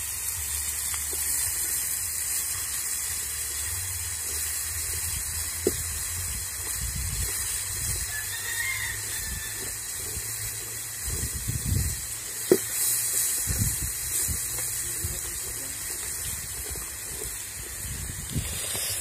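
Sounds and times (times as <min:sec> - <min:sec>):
vegetables sizzling in a pot: 0:00.0 - 0:19.0
low wind rumble: 0:11.0 - 0:12.3, 0:13.4 - 0:15.4, 0:16.2 - 0:19.0.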